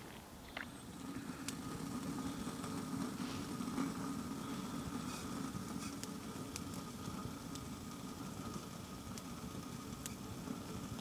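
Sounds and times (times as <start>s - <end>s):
burning sticks crackling: 0.0s - 11.0s
wood fire roaring: 0.0s - 11.0s.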